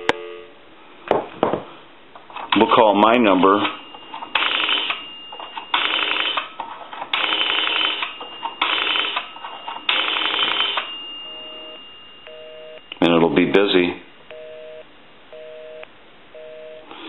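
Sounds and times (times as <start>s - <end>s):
busy signal beeps: 0.0s - 0.6s, 10.8s - 13.0s, 14.3s - 16.9s
payphone dial clicking: 3.5s - 10.9s.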